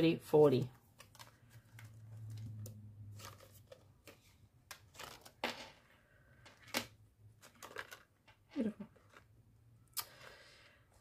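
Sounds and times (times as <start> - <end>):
plastic banknotes rustling: 0.5 - 5.7, 6.4 - 9.3.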